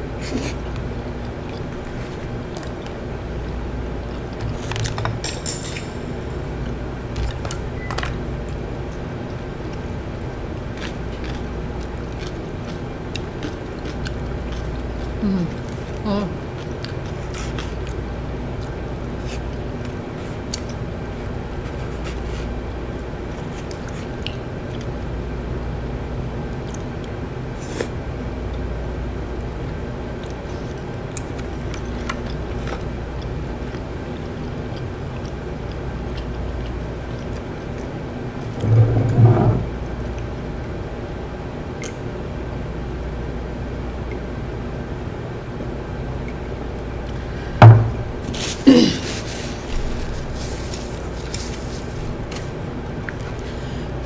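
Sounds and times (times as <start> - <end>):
low steady hum: 0.0 - 54.0
person chewing: 0.2 - 5.0, 8.4 - 18.0, 30.2 - 39.1.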